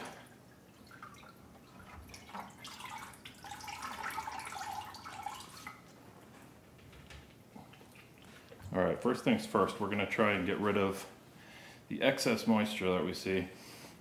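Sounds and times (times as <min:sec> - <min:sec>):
liquid dripping into a bucket: 0:00.0 - 0:06.0.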